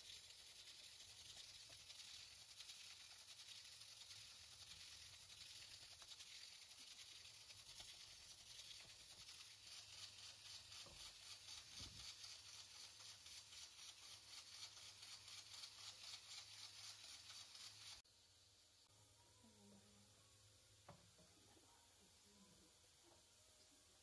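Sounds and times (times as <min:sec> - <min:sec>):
whisk beating batter: 0:00.0 - 0:18.0.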